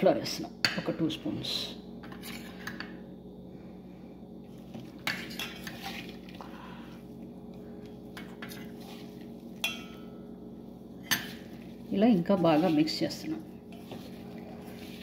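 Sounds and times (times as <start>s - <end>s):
steady low hum: 0.0s - 15.0s
metal spoon clinking on steel bowls: 9.6s - 10.2s.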